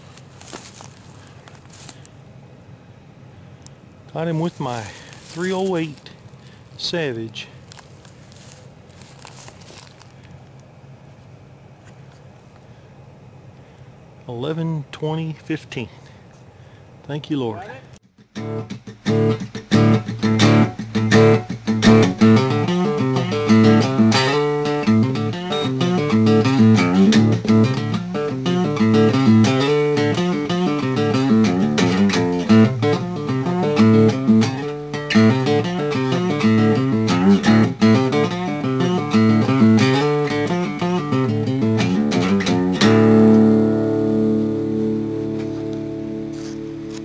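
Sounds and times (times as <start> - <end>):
plucked guitar music: 18.2 - 47.0.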